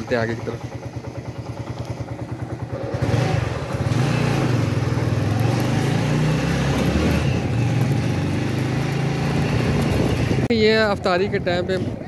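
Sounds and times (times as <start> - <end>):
motorcycle engine: 0.0 - 12.0.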